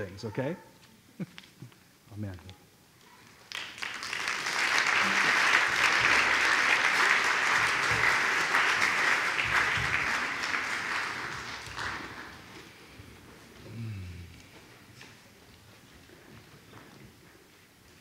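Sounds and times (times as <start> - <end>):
congregation applauding: 3.3 - 13.0.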